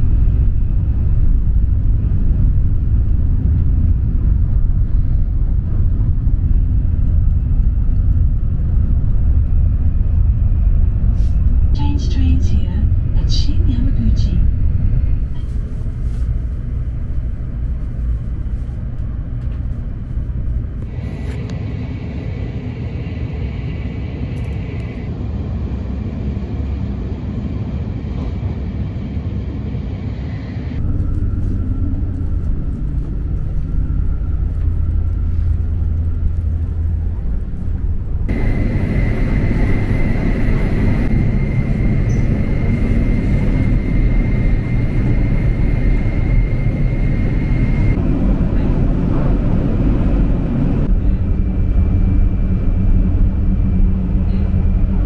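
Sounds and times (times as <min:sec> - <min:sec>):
train rumble inside train: 0:00.0 - 0:55.0
high whine: 0:30.4 - 0:55.0.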